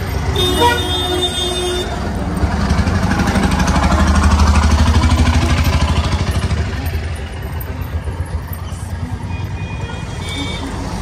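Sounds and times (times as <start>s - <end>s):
motorcycle engine passing: 2.3s - 8.0s.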